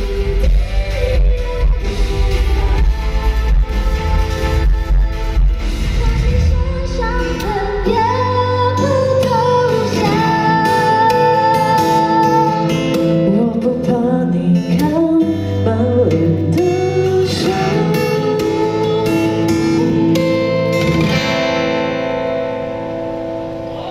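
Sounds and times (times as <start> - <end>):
person singing: 0.0 - 20.8
acoustic guitar: 0.0 - 23.9
electric guitar: 0.0 - 23.9.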